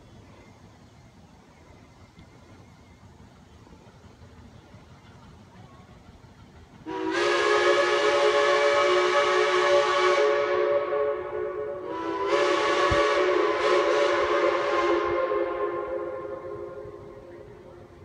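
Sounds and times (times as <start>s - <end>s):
steam whistle blasts: 6.8s - 17.8s.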